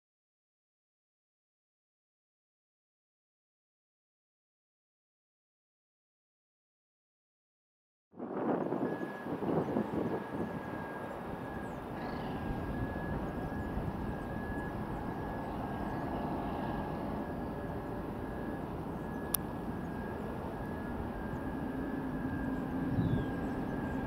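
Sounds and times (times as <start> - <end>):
distant electric train rumble: 8.2 - 24.0
thin steady whine: 8.2 - 24.0.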